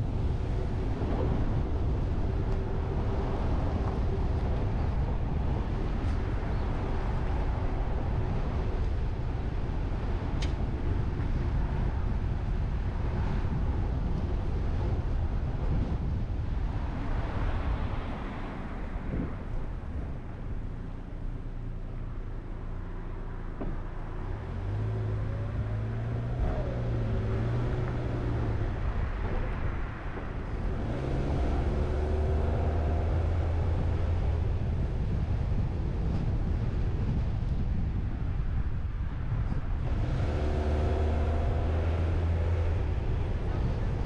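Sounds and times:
road and wind noise rumble: 0.0 - 44.0
car engine accelerating: 22.5 - 37.3, 39.5 - 44.0.

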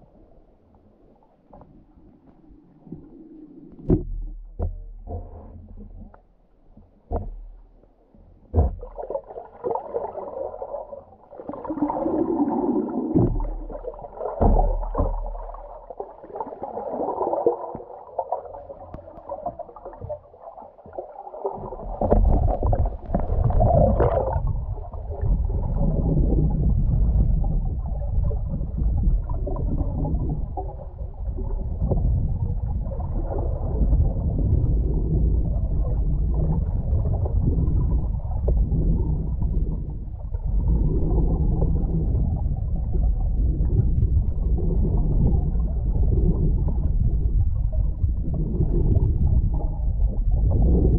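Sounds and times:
underwater water rushing and gurgling: 0.0 - 50.9
steady low rumble: 12.1 - 16.4, 17.8 - 50.9.

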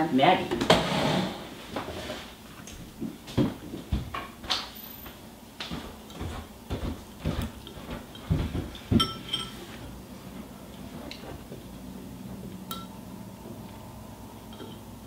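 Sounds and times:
spoons clinking on ceramic bowls: 8.8 - 9.7, 12.7 - 13.0, 14.5 - 14.9.

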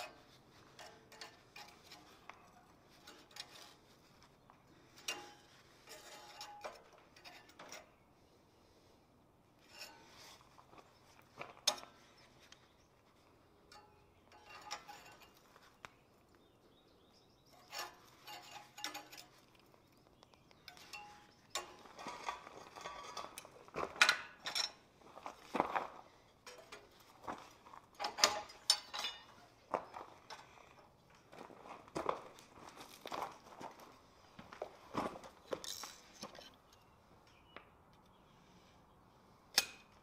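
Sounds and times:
tools clinking on forged iron: 13.6 - 15.4, 17.6 - 19.6, 20.6 - 24.9, 26.3 - 27.2, 28.0 - 29.6, 39.5 - 40.0.

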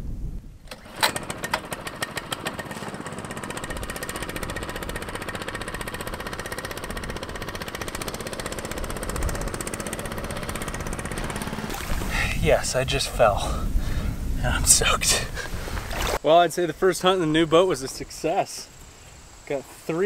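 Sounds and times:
small boat motor running: 0.7 - 12.1.

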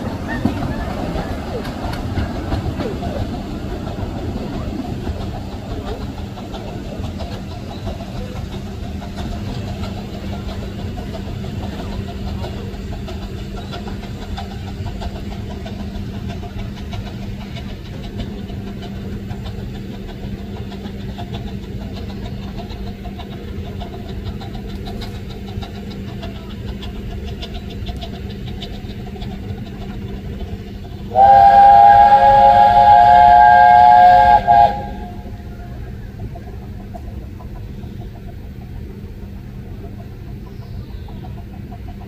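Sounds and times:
low mechanical hum and rumble: 0.0 - 42.0.

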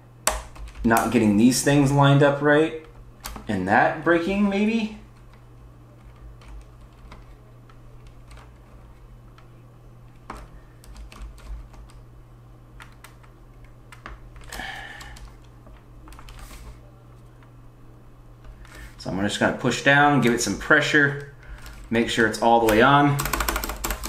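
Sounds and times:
low steady hum: 0.0 - 24.0
plastic keyboard clicks and taps: 22.6 - 24.0.

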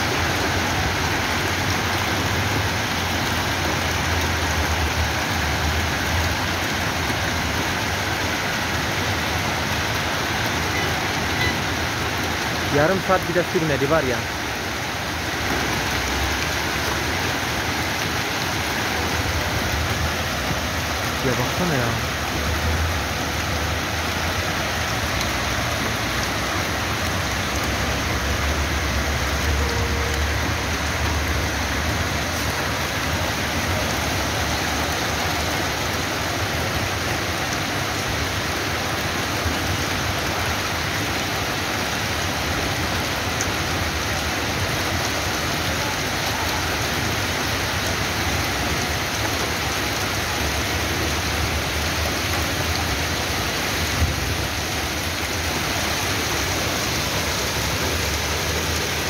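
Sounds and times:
heavy rain and hail: 0.0 - 59.0.

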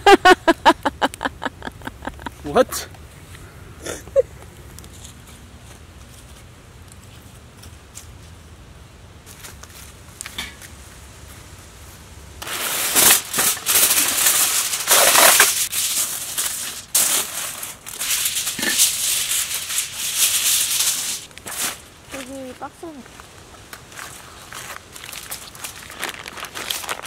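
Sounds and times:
aluminium foil crinkling: 12.4 - 22.9, 23.9 - 27.0.

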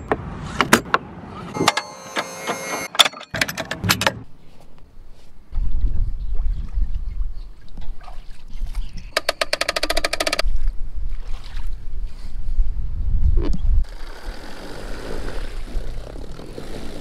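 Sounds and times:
rapid clicking rattle: 9.2 - 10.4
feet splashing through shallow water: 10.4 - 12.4.

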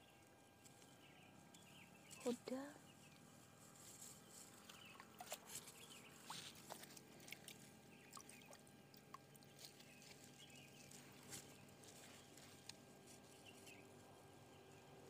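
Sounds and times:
water dripping from net: 6.2 - 9.6.

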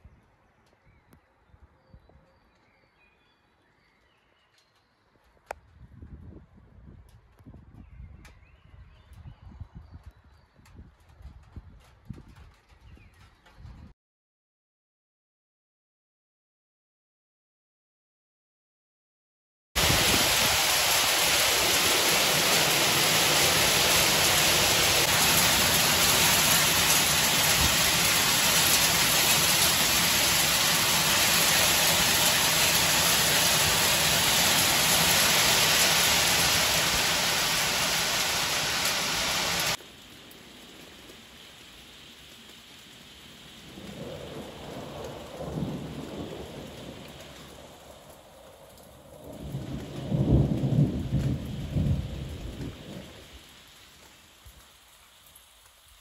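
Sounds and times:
quieter rain: 9.9 - 13.5, 19.8 - 56.0
hail and heavy rain pelting: 19.8 - 56.0
rumble of thunder: 43.5 - 53.5.

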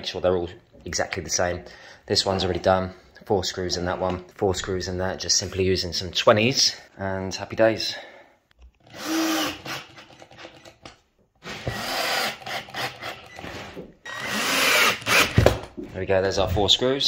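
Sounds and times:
cordless drill driving screws: 8.8 - 10.8, 11.4 - 15.5.

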